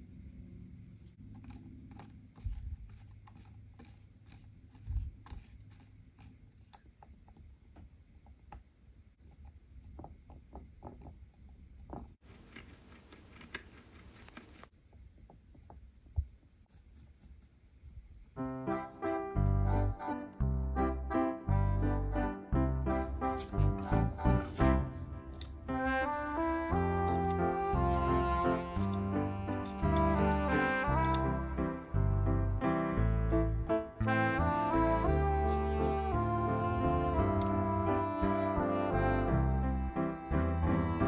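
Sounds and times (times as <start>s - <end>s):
piano music: 18.4s - 41.0s.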